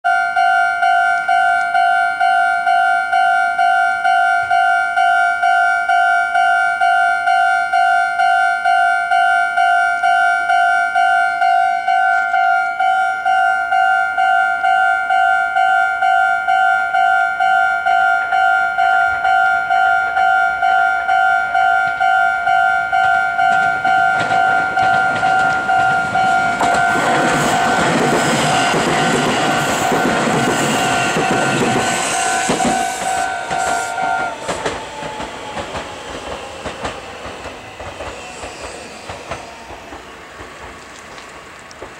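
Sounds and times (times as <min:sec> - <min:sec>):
level crossing warning bell: 0:00.0 - 0:40.0
electric train passing: 0:00.1 - 0:41.9.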